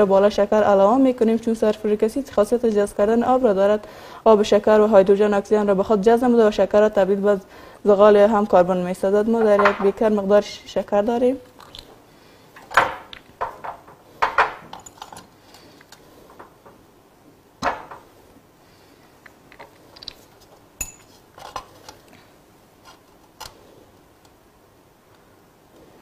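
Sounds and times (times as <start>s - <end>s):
glassware clinking: 20.8s - 21.1s.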